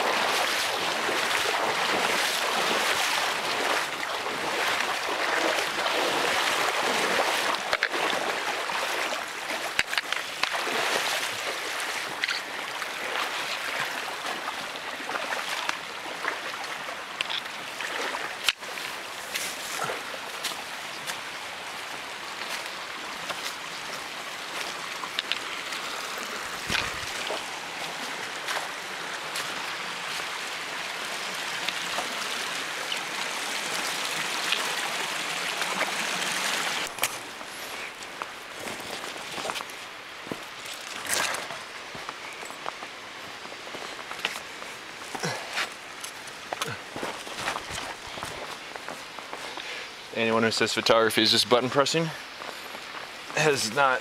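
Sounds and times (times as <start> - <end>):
water rushing over rocks: 0.0 - 54.0
footsteps on rock: 26.5 - 27.5, 36.9 - 49.7.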